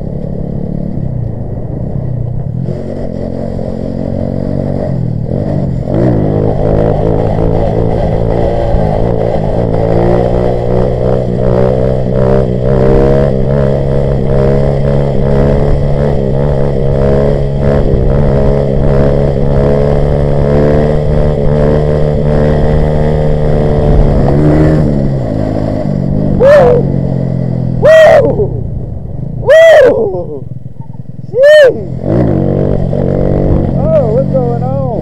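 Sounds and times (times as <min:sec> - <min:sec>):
minibike engine under throttle: 0:29.9 - 0:35.0.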